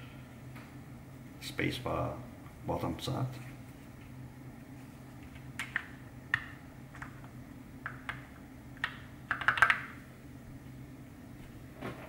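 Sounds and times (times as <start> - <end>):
mechanical keyboard typing: 8.8 - 9.9.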